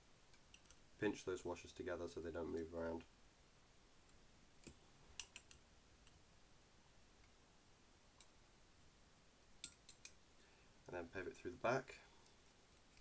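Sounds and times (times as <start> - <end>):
small metal parts clicking: 5.2 - 6.2.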